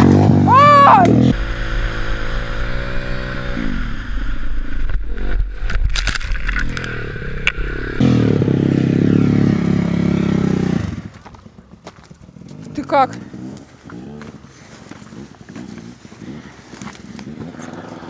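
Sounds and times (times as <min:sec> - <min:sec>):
motorcycle engine revving: 0:00.0 - 0:18.0
bike crashing through dry brush: 0:05.2 - 0:08.0.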